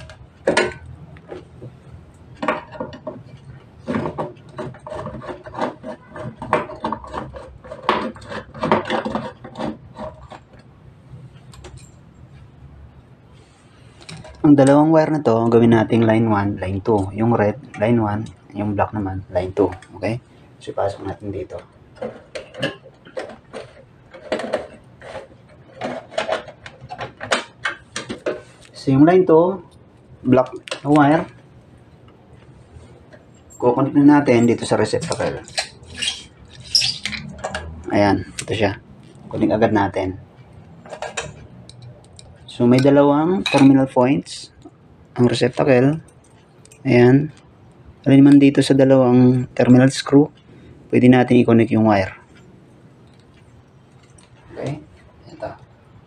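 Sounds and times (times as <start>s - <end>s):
wire scraping through plastic conduit: 0.0s - 11.8s, 20.9s - 28.8s.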